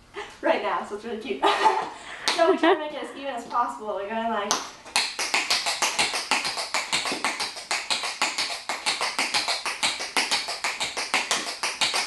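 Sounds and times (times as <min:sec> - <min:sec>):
tap shoes on concrete: 0:04.5 - 0:12.0.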